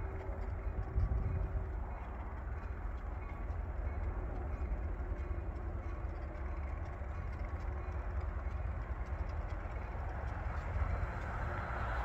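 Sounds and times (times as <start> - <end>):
wind rumbling on microphone: 0.0 - 4.8
distant engine hum: 0.0 - 12.0.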